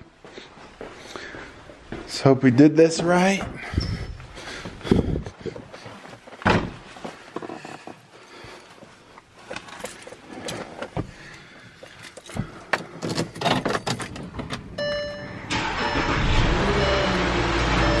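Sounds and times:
car engine starting and running: 14.3s - 18.0s
short electronic tone: 14.8s - 18.0s.

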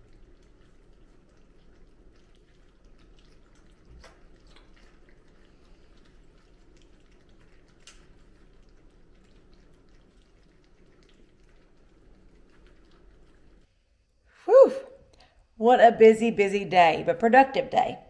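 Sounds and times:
puppies lapping wet food: 0.0s - 13.7s.

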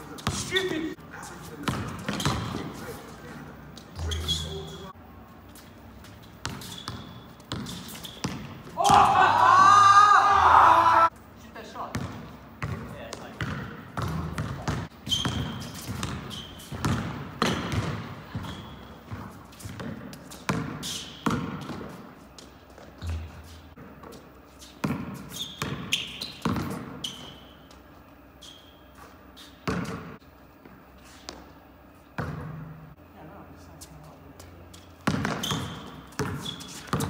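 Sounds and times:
sneakers squeaking: 0.0s - 9.8s, 10.4s - 33.0s, 33.7s - 37.0s
basketball bouncing on hard court: 1.6s - 2.7s, 6.4s - 9.0s, 11.9s - 22.0s, 24.8s - 27.0s, 29.6s - 30.2s, 32.2s - 32.7s, 35.0s - 37.0s.

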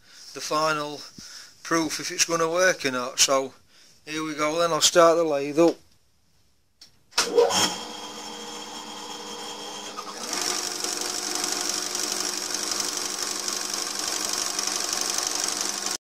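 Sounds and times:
motor hum: 7.4s - 16.0s
high-pitched mechanical running: 9.7s - 16.0s.

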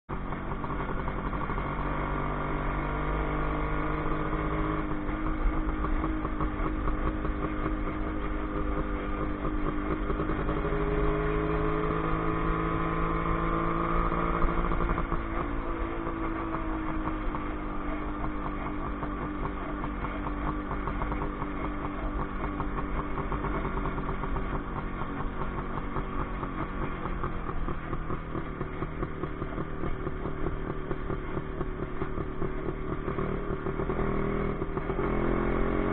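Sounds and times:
motorcycle engine running: 0.1s - 35.9s.

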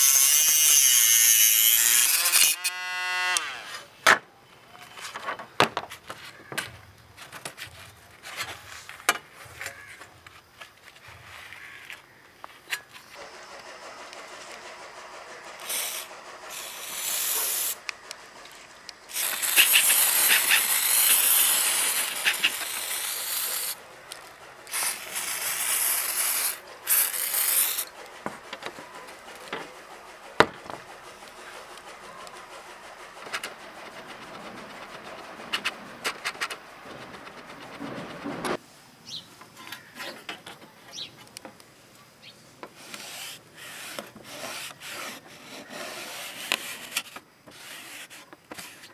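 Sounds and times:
aerosol spray can hissing: 15.6s - 17.9s, 19.1s - 23.8s, 24.6s - 35.7s.

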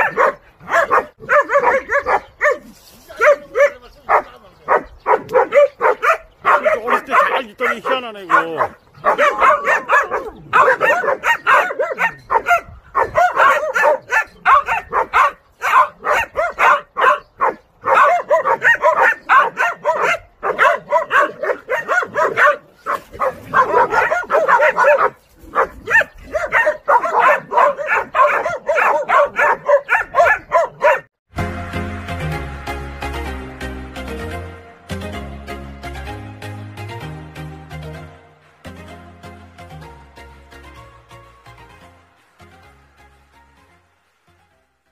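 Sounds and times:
puppy yapping barks: 0.0s - 31.1s.

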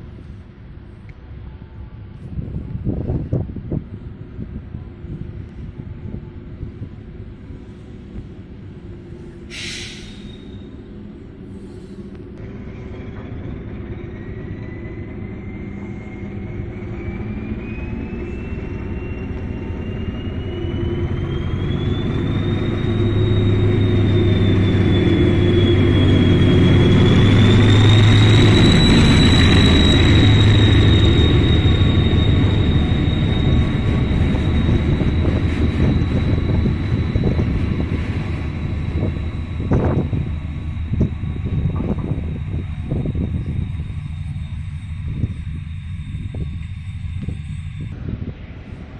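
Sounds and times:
diesel locomotive engine rumble: 0.0s - 48.9s
rail cars rolling by: 0.0s - 48.9s
high whine: 12.1s - 48.6s.

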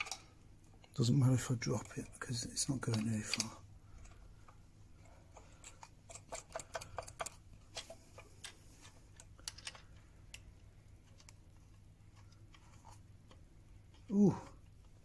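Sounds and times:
metallic clicks of nut and washers: 0.0s - 1.0s, 1.8s - 11.4s
faint low hum: 0.0s - 15.0s.

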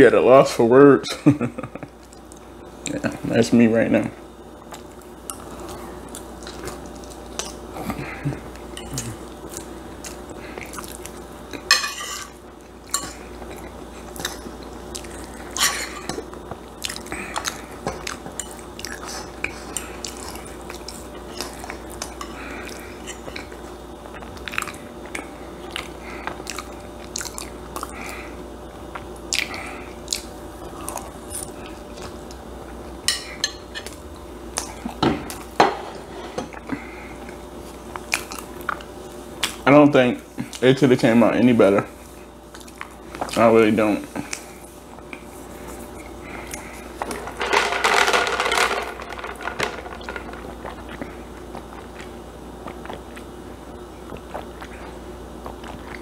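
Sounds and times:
person chewing food: 4.6s - 11.7s, 12.7s - 32.4s, 50.4s - 56.0s.

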